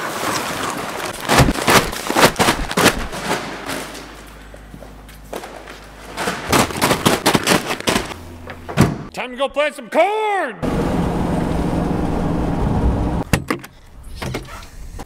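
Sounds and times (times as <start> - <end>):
bags thudding into truck bed: 0.6 - 4.1, 6.1 - 9.1.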